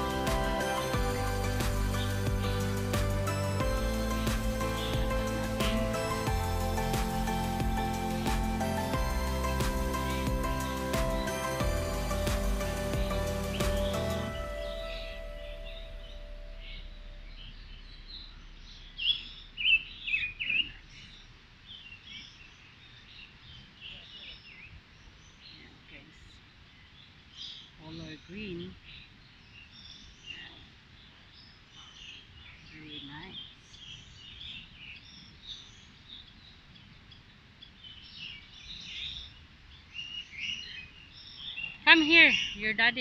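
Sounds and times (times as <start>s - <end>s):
faint low rumble: 0.0s - 24.0s
birds chirping: 0.0s - 43.0s.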